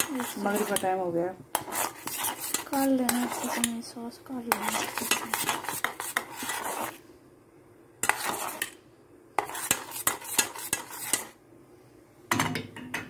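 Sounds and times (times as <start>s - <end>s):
metal spoon scraping saucepan: 0.0s - 3.9s, 4.5s - 7.0s, 8.0s - 8.8s, 9.4s - 11.4s.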